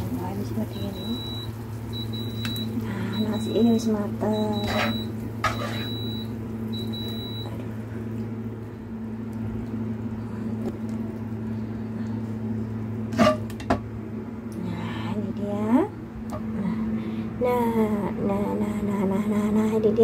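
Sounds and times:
steady low hum: 0.0 - 20.0
rice cooker electronic beep: 0.6 - 7.6.

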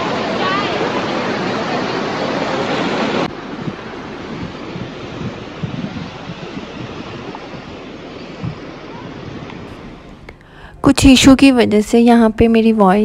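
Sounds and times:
stream rushing over boulders: 0.0 - 10.2
wind buffeting microphone: 0.0 - 13.0.

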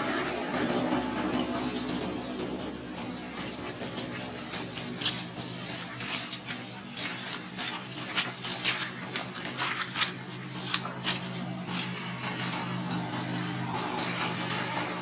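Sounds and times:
dry leaves crackling and rustling: 3.0 - 15.0.

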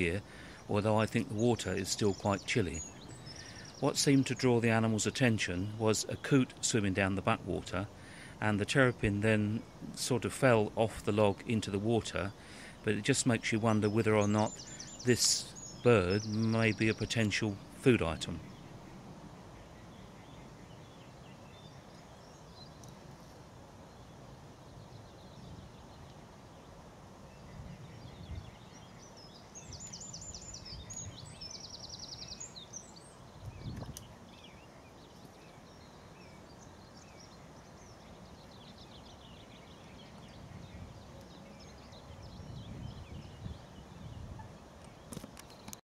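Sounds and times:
small birds trilling: 0.0 - 45.8.

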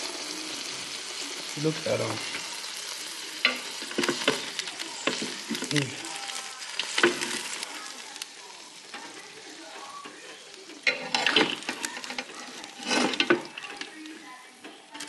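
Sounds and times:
steady sizzling hiss: 0.0 - 15.0
utensils clattering against cookware: 3.4 - 6.1, 6.7 - 7.6, 8.8 - 15.0.

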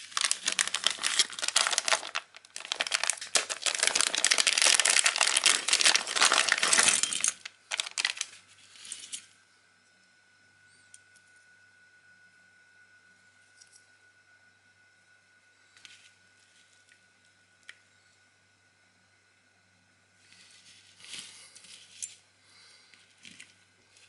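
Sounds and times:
foil pouch crinkling: 0.0 - 8.4.

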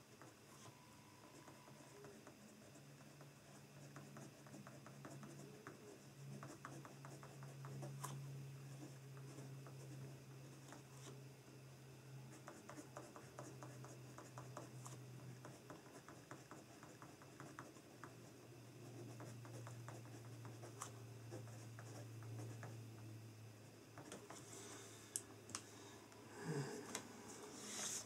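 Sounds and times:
steady low hum: 0.0 - 28.0
pen scratching on paper: 12.4 - 22.8.

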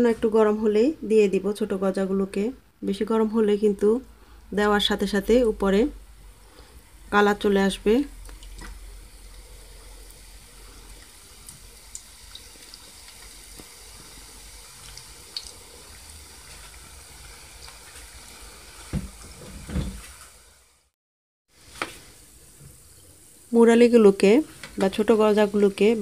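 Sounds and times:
dough sizzling in hot oil: 4.8 - 26.0.

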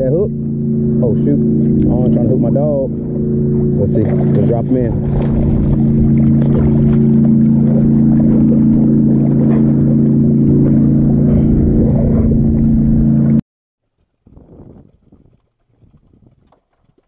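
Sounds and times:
boat motor humming: 0.0 - 13.4.

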